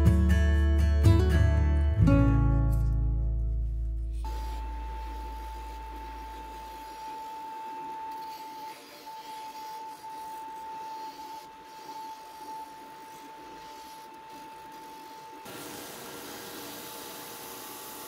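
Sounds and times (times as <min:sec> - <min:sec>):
disc sander whine: 0:04.3 - 0:18.0
wood sanding hiss: 0:04.3 - 0:18.0.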